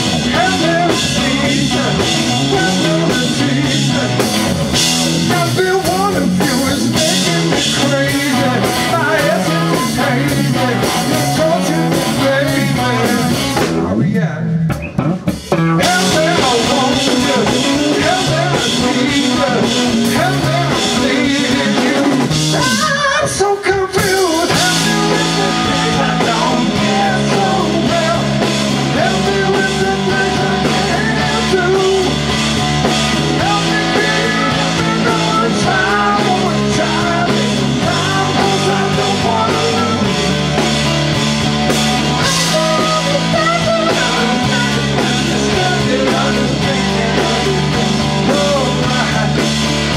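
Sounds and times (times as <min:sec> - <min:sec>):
man singing: 0:00.0 - 0:14.8, 0:15.7 - 0:32.4, 0:33.0 - 0:41.0, 0:42.0 - 0:49.9
live rock band playing: 0:00.0 - 0:49.9
bass line stepping through low notes: 0:24.5 - 0:49.9.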